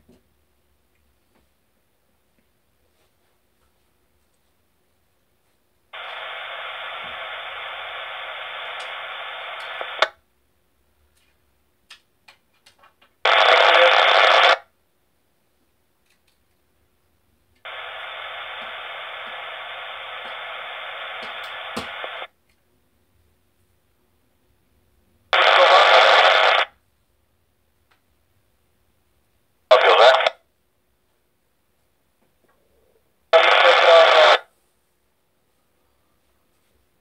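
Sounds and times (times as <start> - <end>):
burst of static: 5.9 - 10.2, 13.2 - 14.7, 17.6 - 22.3, 25.4 - 26.8, 29.7 - 30.4, 33.3 - 34.5
radio hiss: 5.9 - 10.2, 13.2 - 14.7, 17.6 - 22.3, 25.3 - 26.8, 29.7 - 30.5, 33.3 - 34.5.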